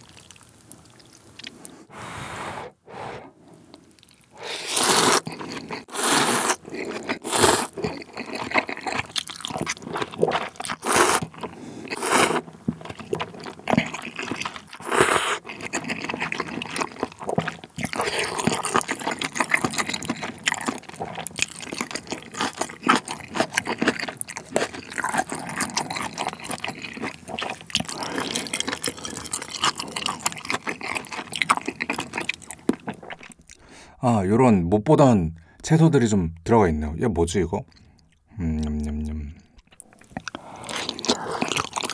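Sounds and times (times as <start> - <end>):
wet chewing: 0.0 - 1.9, 3.7 - 33.7, 37.7 - 41.9
noodle slurping: 4.0 - 33.4, 39.7 - 41.9.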